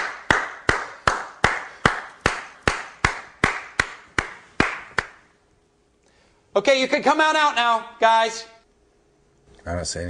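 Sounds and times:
hands clapping with reverb: 0.0 - 5.3.

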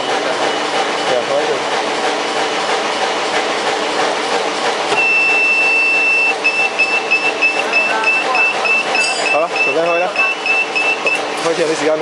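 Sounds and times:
electronic buzzer beeping: 5.0 - 11.3.

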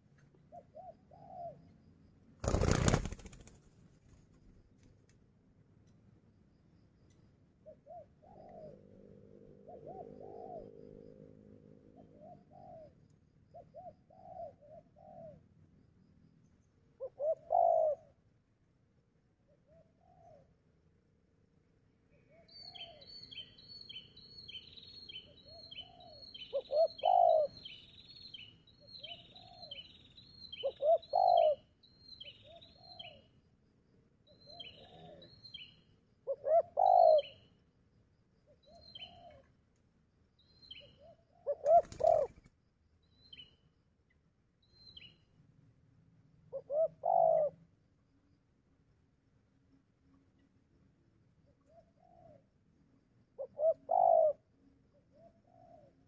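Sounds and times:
doves cooing: 7.7 - 11.0, 17.0 - 18.1, 25.4 - 27.7, 30.6 - 31.7, 36.3 - 37.4, 38.7 - 39.4, 40.9 - 42.5, 46.5 - 47.6, 53.4 - 54.5, 55.1 - 56.0.

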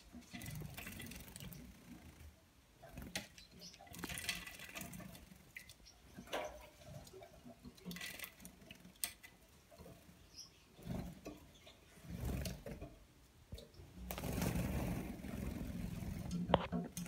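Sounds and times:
wings fluttering: 14.0 - 16.7.

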